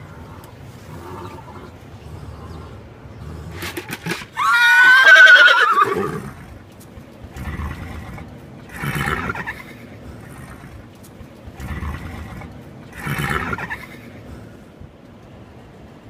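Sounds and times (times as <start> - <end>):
horse whinnying loudly: 4.2 - 6.5.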